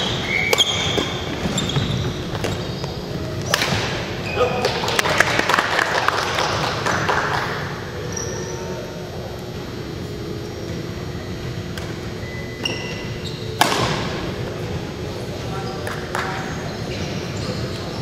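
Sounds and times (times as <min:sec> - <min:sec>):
sneaker squeaks: 0:00.0 - 0:04.8, 0:08.0 - 0:08.9, 0:12.1 - 0:14.1, 0:15.4 - 0:18.0
reverberant hall background noise: 0:00.0 - 0:18.0
racket hitting shuttlecock: 0:03.4 - 0:04.1, 0:13.6 - 0:14.2.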